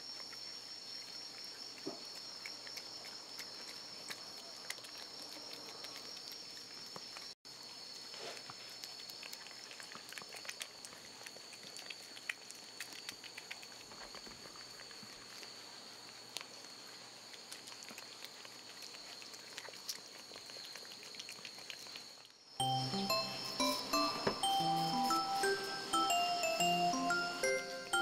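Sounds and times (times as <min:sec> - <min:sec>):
cats licking and smacking: 0:00.1 - 0:22.4
steady high tone: 0:22.6 - 0:28.0.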